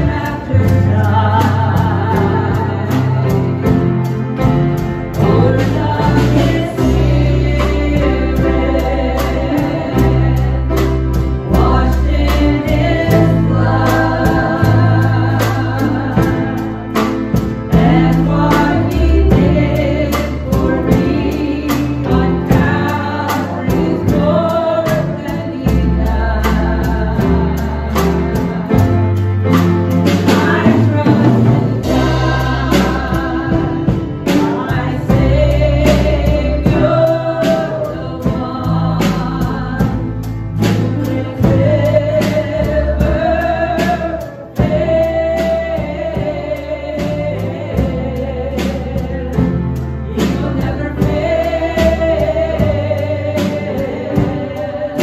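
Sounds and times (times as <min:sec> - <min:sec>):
women singing together: 0:00.0 - 0:04.2, 0:05.1 - 0:29.0, 0:29.6 - 0:55.0
drum kit playing steady beat: 0:00.0 - 0:55.0
organ: 0:00.0 - 0:55.0.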